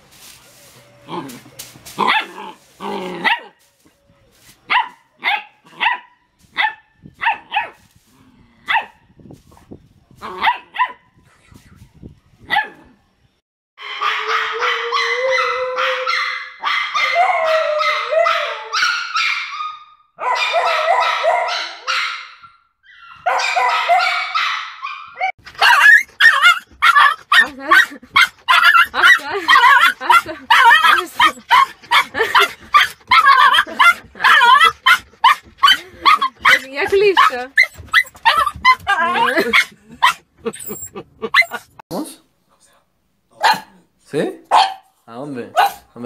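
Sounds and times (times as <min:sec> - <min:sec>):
puppy barking: 0:02.0 - 0:02.4, 0:03.1 - 0:03.6, 0:04.7 - 0:07.8, 0:08.7 - 0:09.0, 0:10.2 - 0:11.1, 0:12.5 - 0:12.8, 0:13.8 - 0:41.8, 0:43.4 - 0:43.8, 0:44.5 - 0:44.9, 0:45.5 - 0:45.9
dogs howling: 0:13.8 - 0:18.9, 0:23.1 - 0:40.2.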